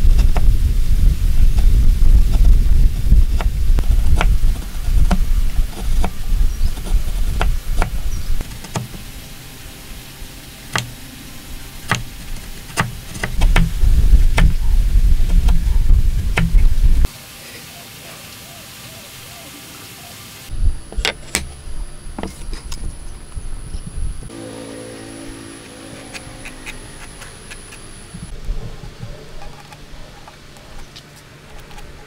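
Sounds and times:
heavy low rumble: 0.0s - 17.1s, 20.5s - 30.8s
chisel paring wood: 11.9s - 14.6s.

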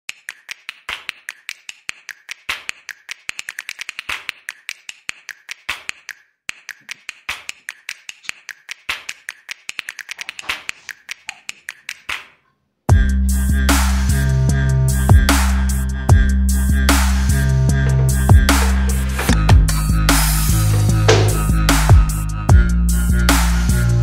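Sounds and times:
rapid irregular clicking: 17.8s - 22.0s.

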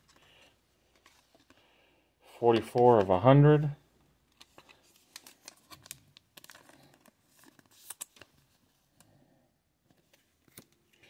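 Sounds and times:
trading cards clicking and rustling: 2.4s - 3.2s.

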